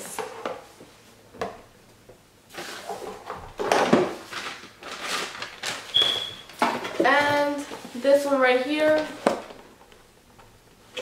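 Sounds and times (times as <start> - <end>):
paper bag and boxes rustling: 2.5 - 9.6.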